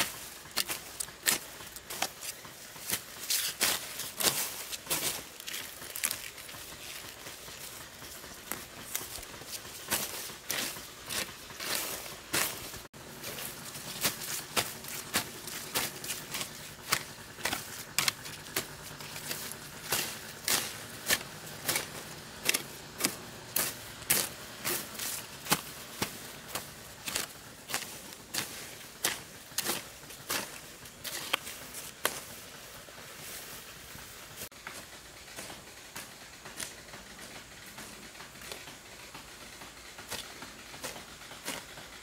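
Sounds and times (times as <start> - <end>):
hoe chopping into dry soil: 0.0 - 32.4.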